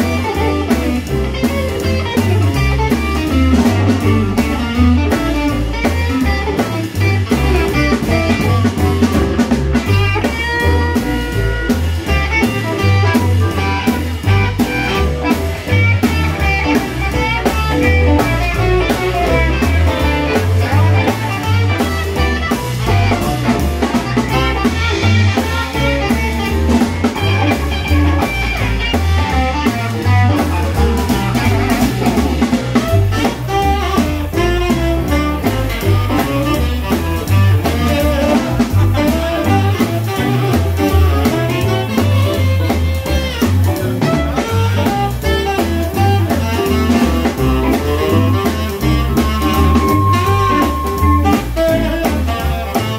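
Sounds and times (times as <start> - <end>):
drum kit played with sticks: 0.0 - 52.9
electric guitars: 0.0 - 52.9
walking bass line: 0.0 - 52.9.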